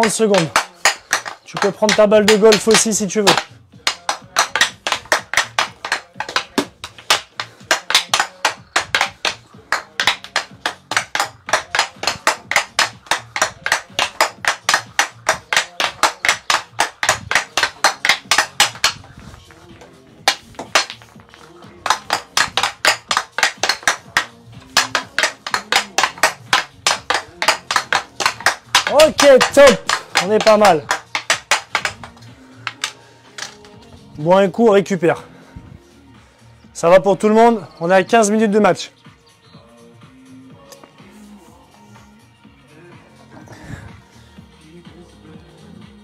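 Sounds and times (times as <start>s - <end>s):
hockey stick clacking puck: 0.0s - 33.8s.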